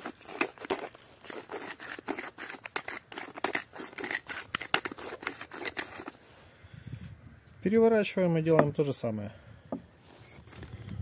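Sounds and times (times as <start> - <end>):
pepper grinder cracking peppercorns: 0.0 - 6.2.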